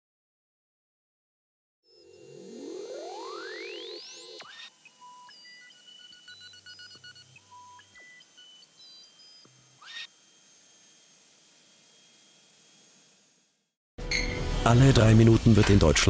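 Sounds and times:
electronic beeps and blips: 1.9s - 9.5s.

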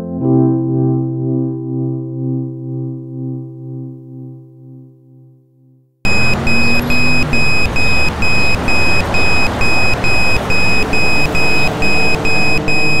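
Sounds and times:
crossing signal beeping fast: 6.1s - 13.0s
traffic noise: 6.1s - 13.0s.

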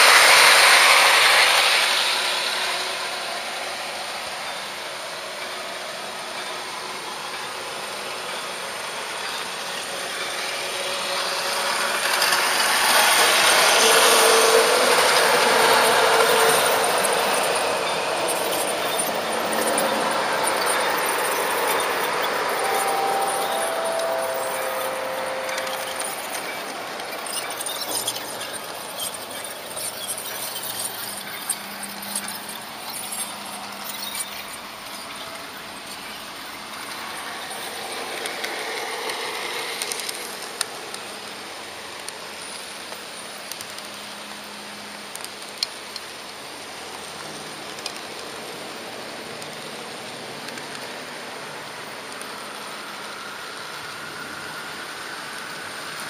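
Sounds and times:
model train rattling on track: 0.0s - 25.0s, 25.6s - 44.0s.

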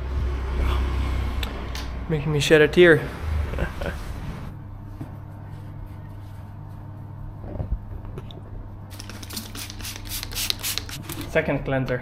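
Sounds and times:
spray bottle spritzing: 8.9s - 11.0s.

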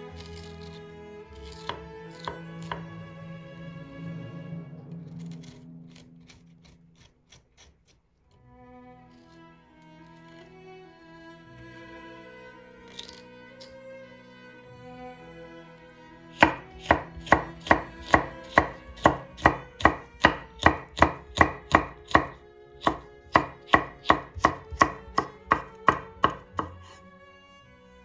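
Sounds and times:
knife slicing on wooden board: 0.1s - 2.9s, 5.2s - 8.0s, 16.4s - 27.0s.

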